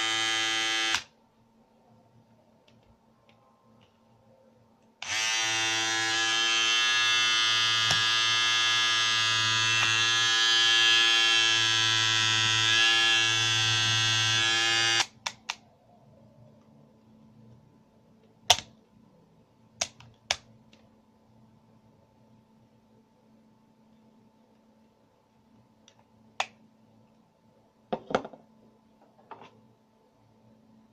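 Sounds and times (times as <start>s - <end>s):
electric shaver buzzing: 0.0s - 1.1s, 5.0s - 15.1s.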